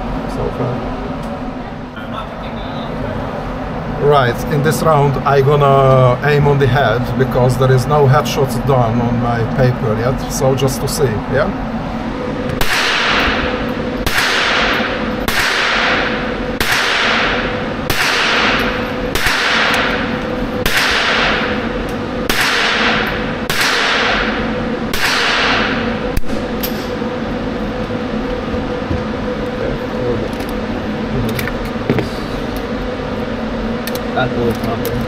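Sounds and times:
rifle shots echoing indoors: 12.6s - 26.5s.

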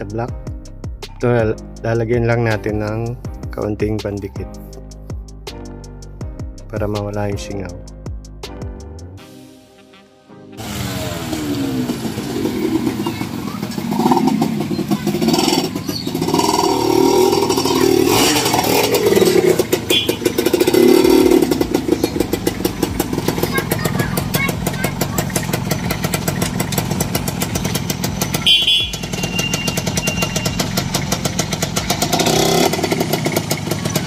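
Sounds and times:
two-stroke engine revving: 10.6s - 34.0s.

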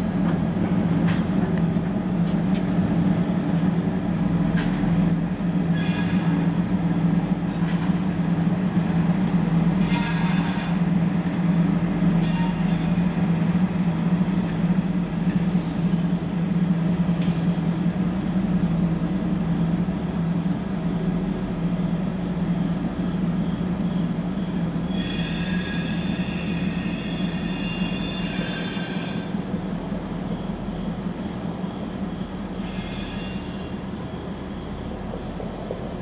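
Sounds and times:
freight train rumbling: 0.0s - 36.0s.

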